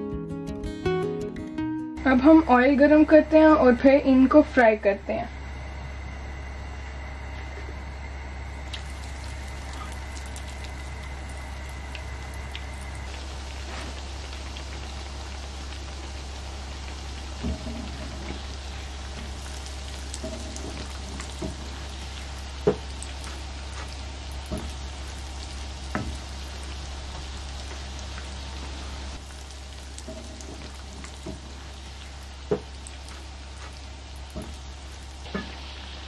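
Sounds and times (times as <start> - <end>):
deep-frying sizzling hiss: 7.5 - 36.0.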